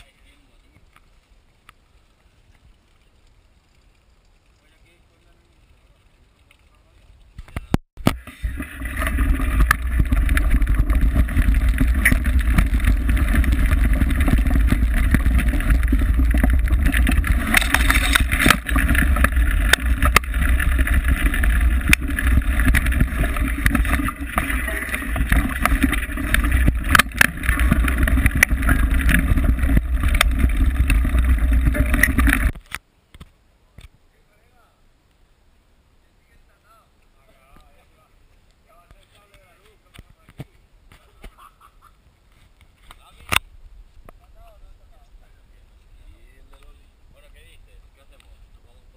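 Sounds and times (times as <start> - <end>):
bike rattles and knocks: 9.1 - 32.7.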